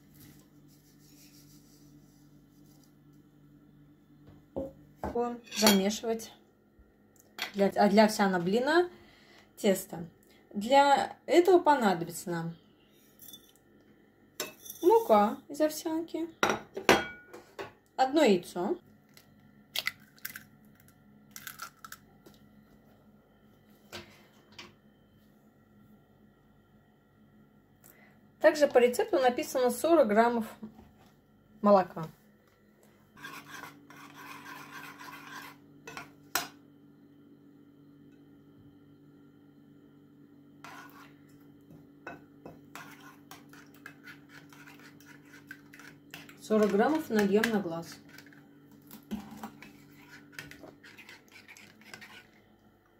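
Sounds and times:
metal spoon scraping ceramic bowl: 5.4 - 5.9, 33.2 - 36.1, 40.6 - 41.2, 42.7 - 47.2, 49.4 - 52.4
eggshell cracking: 19.8 - 22.0.

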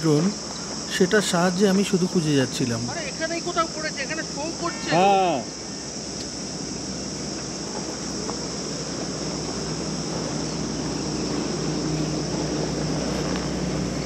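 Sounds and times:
insect chorus: 0.0 - 14.0
low motor hum: 6.4 - 14.0.

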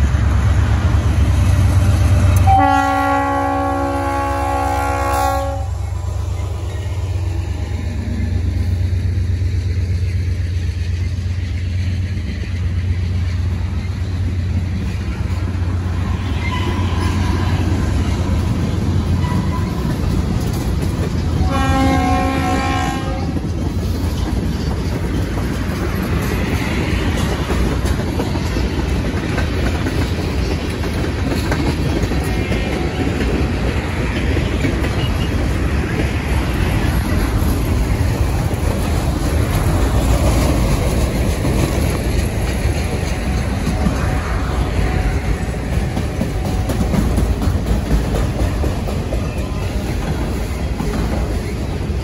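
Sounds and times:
diesel locomotive rumble: 0.0 - 52.0
train horn blast: 1.8 - 7.7, 21.4 - 23.4, 43.1 - 47.1
train wheels clicking over rails: 5.8 - 52.0.

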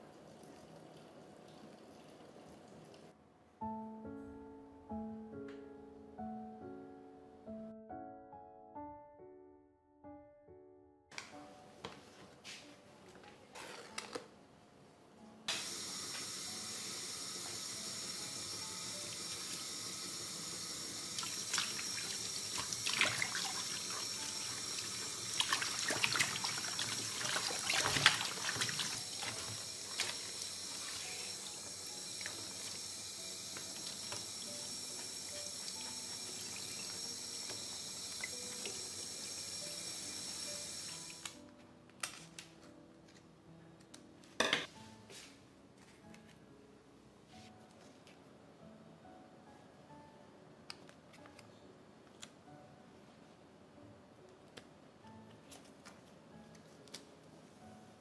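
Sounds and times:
water running from tap: 15.5 - 41.3.

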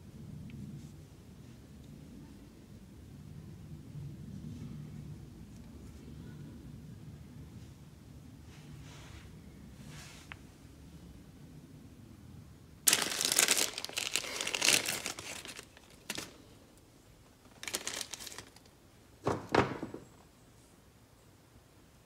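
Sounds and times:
plastic bag crinkling: 12.8 - 16.4, 17.4 - 18.7.

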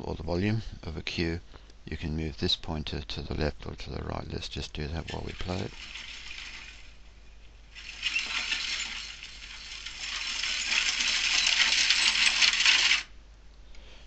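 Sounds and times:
clinking: 5.1 - 7.0, 7.7 - 13.1.

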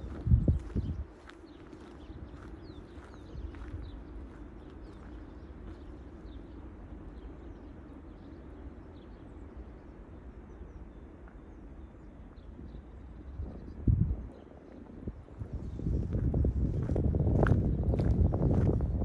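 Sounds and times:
footsteps crunching on snow: 0.0 - 6.2, 15.4 - 18.9
low rumble: 12.6 - 19.0.

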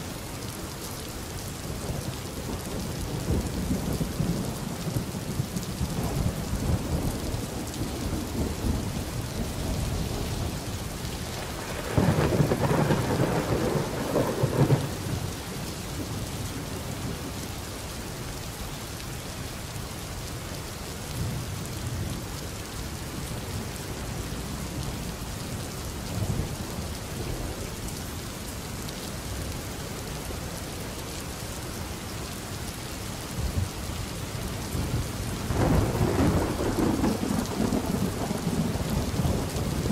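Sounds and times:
steady rain: 0.0 - 39.9
thunder rolling: 11.4 - 15.2, 34.8 - 39.9.

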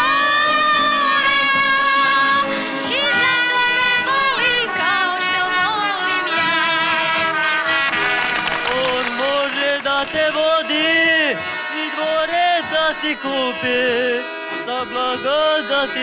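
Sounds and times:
woman singing into microphone: 0.0 - 7.4.

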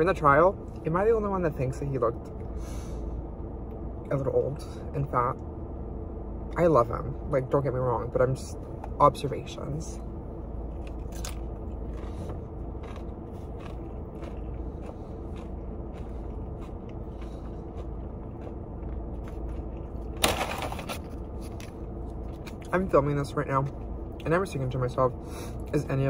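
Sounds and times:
low car interior hum: 0.0 - 26.0
chewing and crunching: 10.4 - 23.0.

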